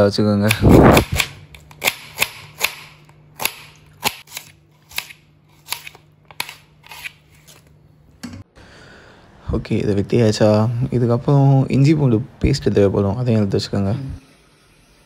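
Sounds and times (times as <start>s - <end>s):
knife slicing onion: 0.5s - 7.7s.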